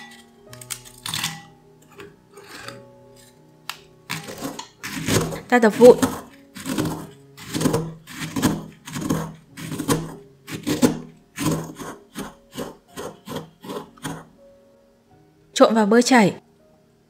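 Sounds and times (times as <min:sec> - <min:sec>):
pestle crunching biscuits: 0:04.0 - 0:14.3.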